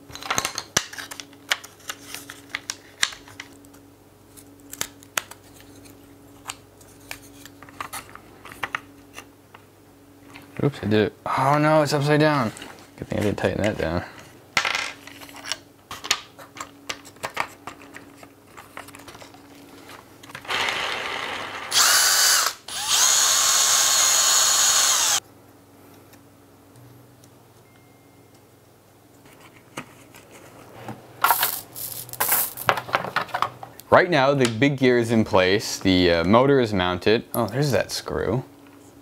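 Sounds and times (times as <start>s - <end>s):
power drill running: 20.4s - 25.2s.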